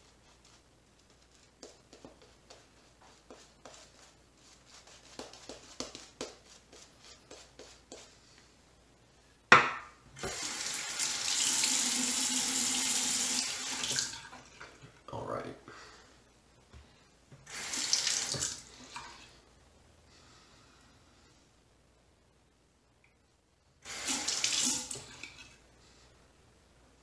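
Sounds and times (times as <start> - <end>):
shaving brush swishing: 0.0 - 8.2
tap water running into sink: 10.2 - 14.5, 17.5 - 18.6, 23.9 - 25.4.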